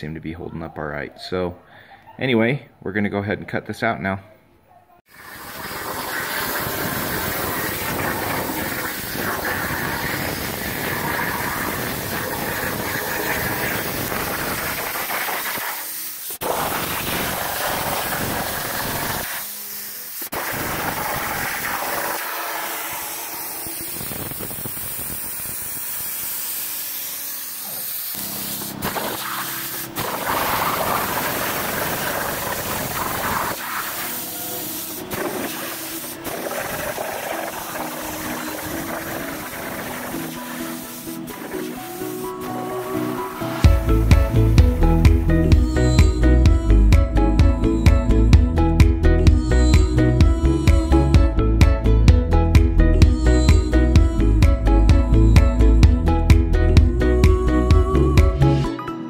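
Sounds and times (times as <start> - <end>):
plasma cutter hissing: 5.1 - 44.7.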